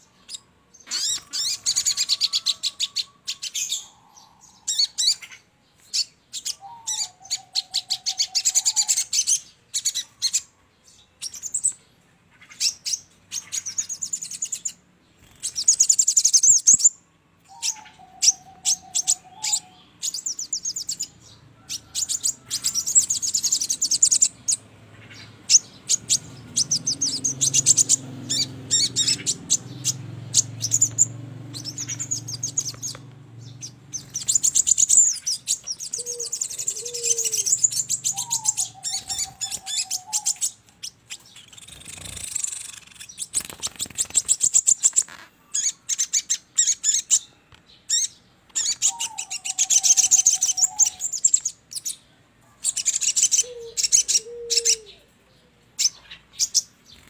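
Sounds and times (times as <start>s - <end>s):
birds chattering trills: 0.0s - 57.0s
low whistled bird call: 34.0s - 40.6s.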